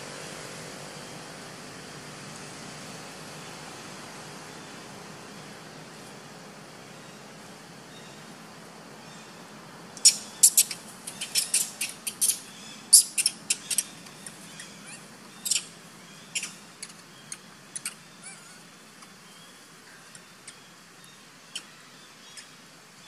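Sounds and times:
high-pitched animal chirps: 10.0s - 13.9s.

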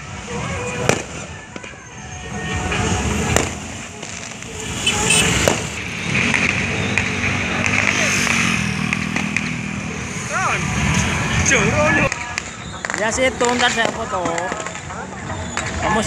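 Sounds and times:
vehicles driving past: 0.0s - 16.0s
firecracker bangs: 3.2s - 9.6s, 12.0s - 14.9s
background voices: 6.6s - 12.1s.

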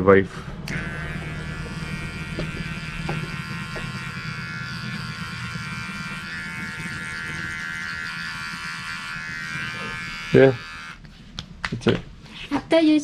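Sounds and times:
electric clipper buzzing: 0.7s - 11.0s.

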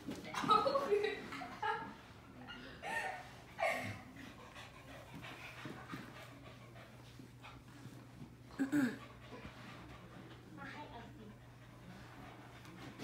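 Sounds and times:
dog panting: 3.4s - 13.0s.

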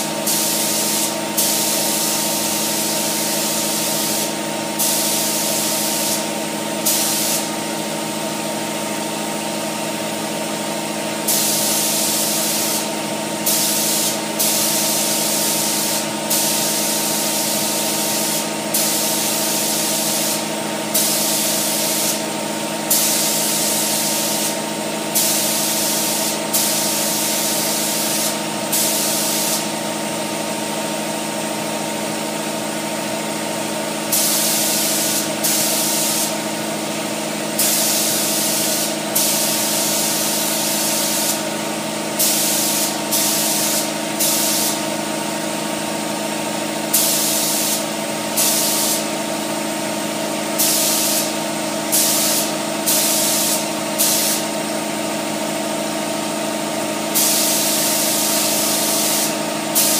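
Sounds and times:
steady mechanical hum: 0.0s - 59.9s
spray paint hissing: 0.2s - 7.5s, 11.3s - 22.2s, 22.9s - 29.7s, 34.1s - 36.4s, 37.5s - 41.4s, 42.2s - 44.9s, 46.9s - 49.0s, 50.5s - 54.5s, 57.1s - 59.9s.

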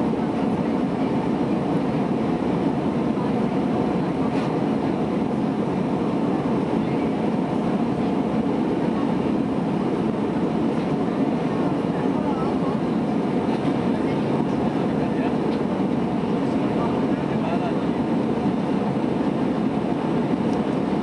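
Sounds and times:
airliner cabin noise: 0.0s - 21.0s.

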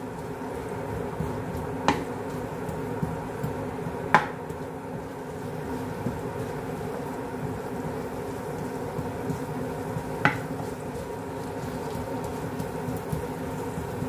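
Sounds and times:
steady low hum: 0.0s - 14.0s
wooden spoon stirring in oil: 0.0s - 14.0s
spoon knocking against pan: 10.2s - 10.5s.

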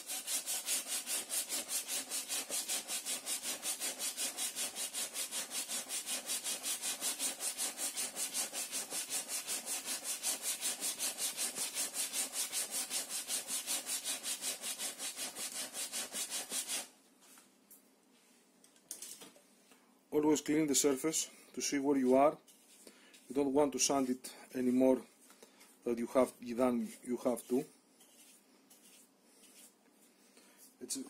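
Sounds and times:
sandpaper scraping wood: 0.0s - 16.9s, 26.8s - 29.8s.

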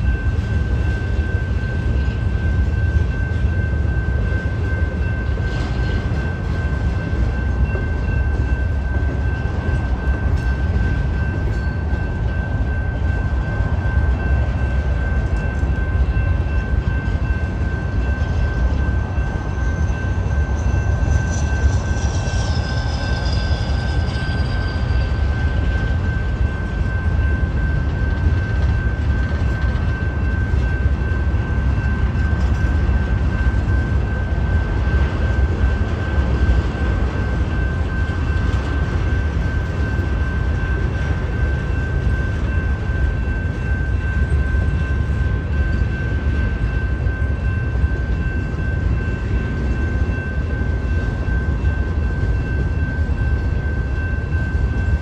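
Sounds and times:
high ringing tone: 0.0s - 55.0s
train wheels rumbling on rails: 0.0s - 55.0s.

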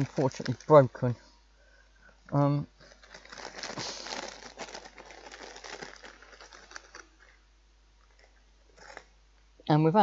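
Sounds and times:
toy parts clicking and rustling: 4.2s - 7.3s.

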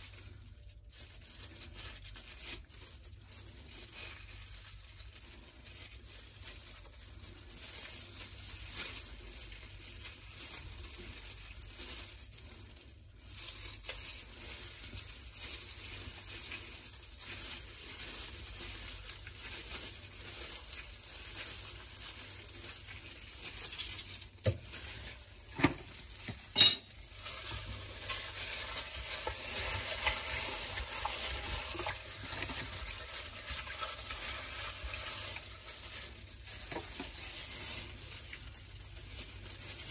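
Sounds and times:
gloved hands rubbing wet chicken: 0.0s - 39.9s.

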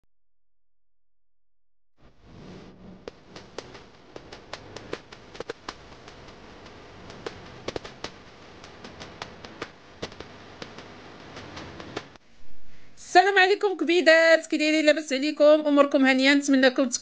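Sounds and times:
steady hiss: 2.2s - 13.1s
sharp clicks and pops: 2.9s - 12.2s.

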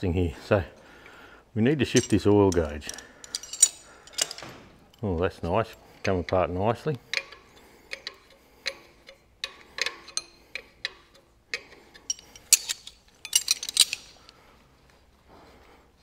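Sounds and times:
spanner clicking on steel fittings: 6.0s - 14.1s.

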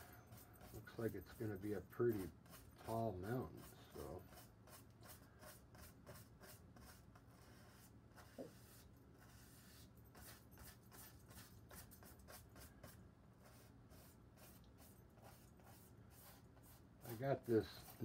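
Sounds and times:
paintbrush swishing on canvas: 6.9s - 18.0s.

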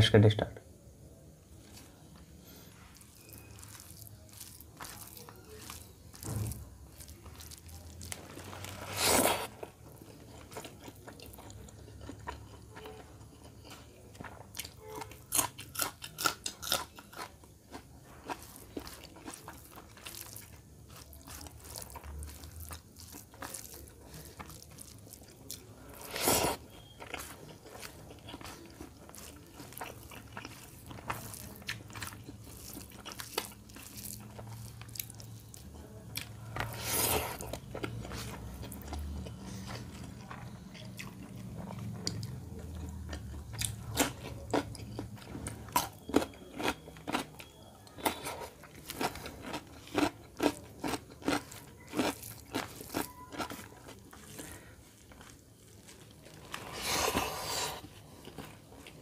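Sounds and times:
chewing and wet mouth sounds: 1.6s - 59.0s
rice squished between fingers: 2.9s - 9.6s.

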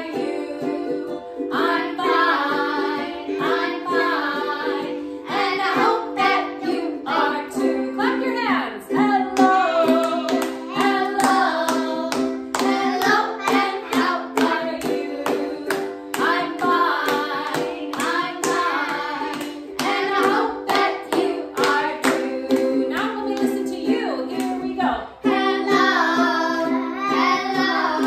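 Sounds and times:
strummed ukulele: 0.0s - 28.0s
woman and children singing: 0.0s - 28.0s
hand clapping: 9.4s - 23.6s.

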